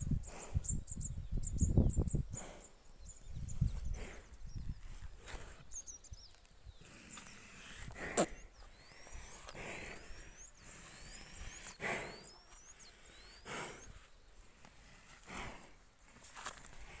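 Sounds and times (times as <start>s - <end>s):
water buffalo breathing heavily: 0.0s - 0.9s, 2.0s - 5.9s, 6.8s - 17.0s
bird whistling: 8.6s - 13.9s.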